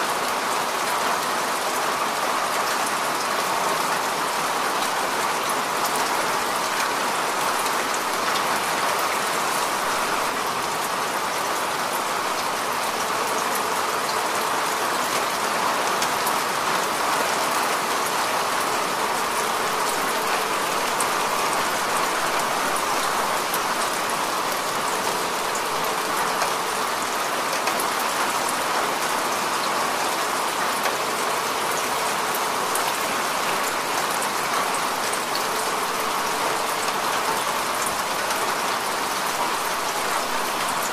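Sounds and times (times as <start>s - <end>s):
heavy rain: 0.0s - 40.9s.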